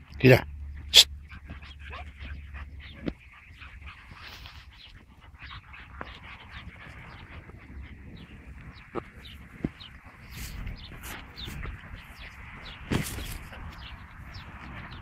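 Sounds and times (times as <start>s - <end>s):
puppies whining and yipping: 1.0s - 12.3s.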